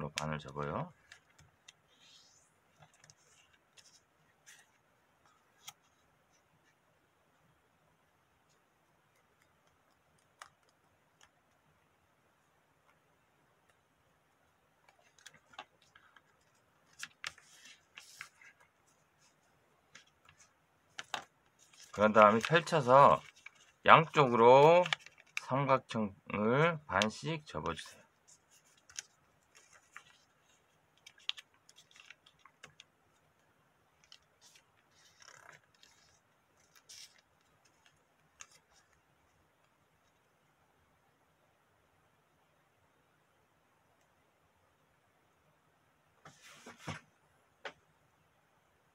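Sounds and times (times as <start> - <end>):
paper rustling: 0.6 - 6.8, 14.9 - 25.6, 27.7 - 33.3, 34.0 - 39.0
paper crinkling and clicking: 14.8 - 25.5, 28.5 - 33.3, 34.0 - 39.0.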